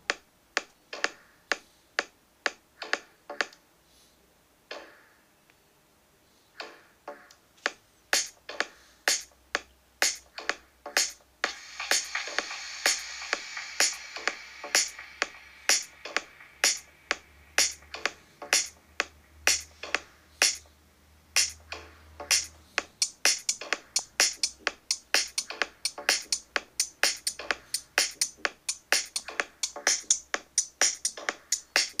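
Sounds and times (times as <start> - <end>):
drum-machine percussion hits: 10.0 - 20.6, 21.4 - 32.0.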